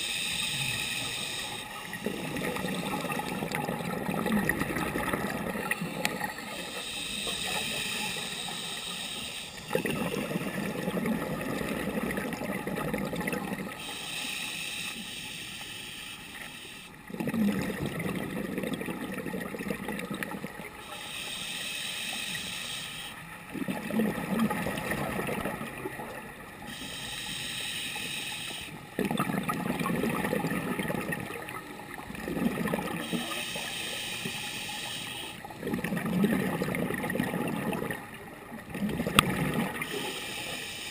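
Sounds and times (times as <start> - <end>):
regulator inhale hiss: 0.0 - 2.1, 5.8 - 10.3, 13.7 - 17.0, 20.8 - 23.3, 26.7 - 28.8, 33.0 - 35.5, 39.8 - 40.9
exhaled air bubbling: 0.0 - 14.0, 17.0 - 21.4, 23.3 - 27.6, 28.6 - 34.6, 35.2 - 40.4.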